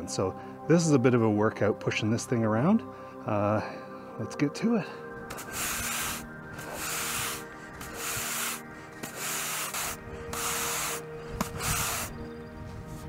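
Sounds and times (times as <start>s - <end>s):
brush scrubbing artificial turf: 5.3s - 12.2s.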